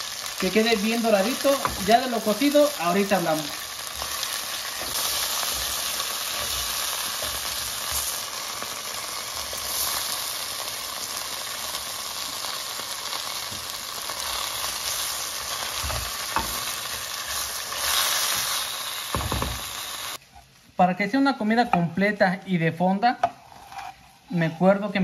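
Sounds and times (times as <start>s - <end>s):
chicken sizzling in hot oil: 0.0s - 20.2s
wooden spoon scraping pot: 23.2s - 24.9s.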